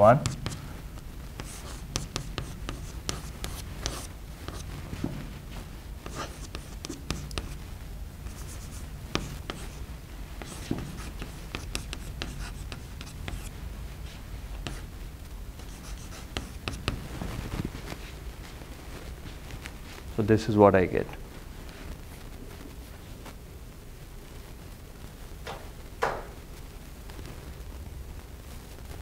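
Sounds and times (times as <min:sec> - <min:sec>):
low room hum: 0:00.0 - 0:29.0
chalk tapping and scratching on blackboard: 0:00.2 - 0:00.6, 0:01.4 - 0:05.1, 0:06.0 - 0:07.6, 0:08.2 - 0:13.5, 0:14.6 - 0:14.9, 0:15.6 - 0:17.1.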